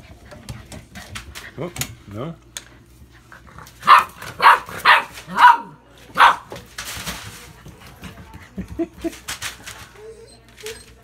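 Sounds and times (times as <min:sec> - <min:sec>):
dog barking: 0:03.8 - 0:06.5.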